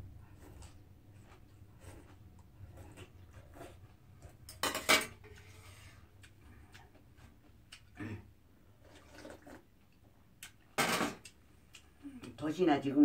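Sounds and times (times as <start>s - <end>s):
cutlery and bowls clinking: 4.4s - 5.4s
eating sounds: 5.4s - 9.7s.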